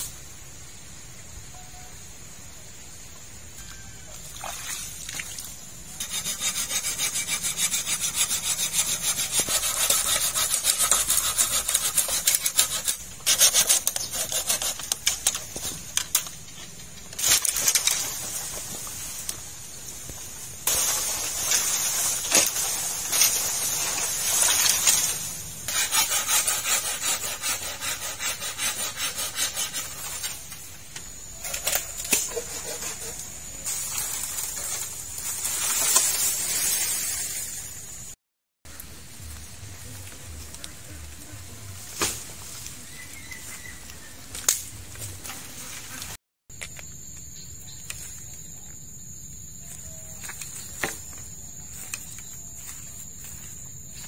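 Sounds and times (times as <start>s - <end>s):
hand saw cutting bamboo: 6.0s - 16.3s, 20.7s - 30.5s, 31.5s - 33.3s.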